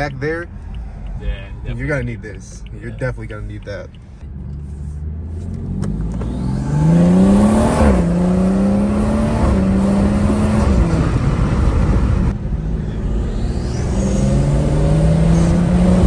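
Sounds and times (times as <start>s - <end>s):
car engine accelerating hard: 4.6s - 16.0s.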